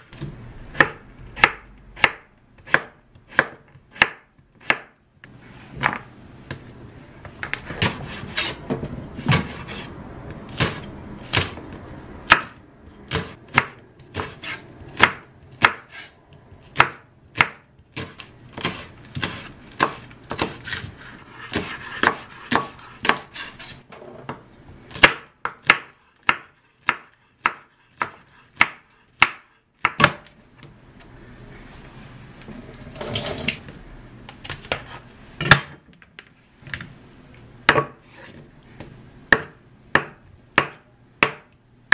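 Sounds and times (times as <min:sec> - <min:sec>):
knife chopping on wooden board: 0:00.0 - 0:04.9, 0:09.2 - 0:09.9, 0:10.5 - 0:11.7, 0:12.3 - 0:16.1, 0:16.7 - 0:23.7, 0:24.9 - 0:30.3, 0:37.7 - 0:38.4, 0:39.3 - 0:41.5.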